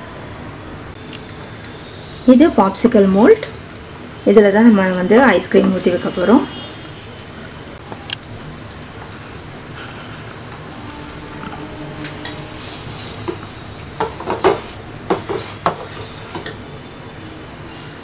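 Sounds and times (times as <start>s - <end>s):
metal ladle scraping a pan: 10.8s - 16.6s.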